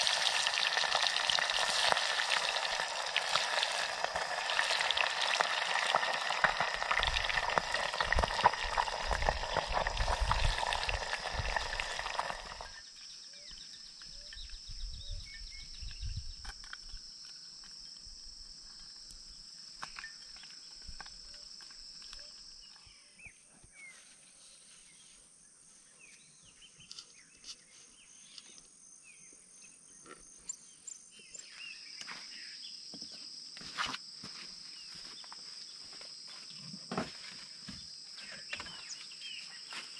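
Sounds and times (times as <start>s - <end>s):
fish frying in hot oil: 0.0s - 12.8s
insect drone: 0.0s - 39.9s
bird chirps: 25.9s - 33.2s.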